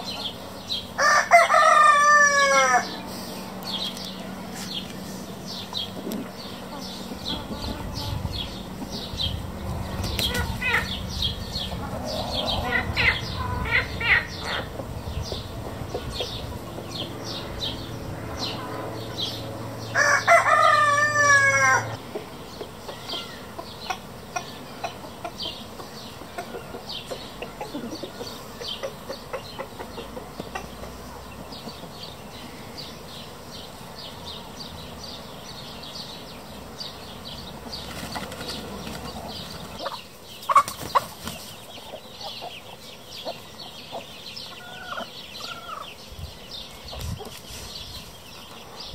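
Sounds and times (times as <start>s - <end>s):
chickens clucking: 0.0s - 17.9s, 20.0s - 32.9s, 37.1s - 48.9s
rooster crowing: 1.0s - 3.0s, 19.8s - 22.0s.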